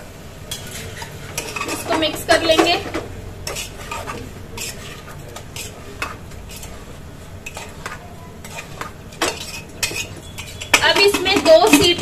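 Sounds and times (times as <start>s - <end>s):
spoon scraping metal pot: 0.5s - 12.0s
spoon clinking on metal: 8.4s - 12.0s.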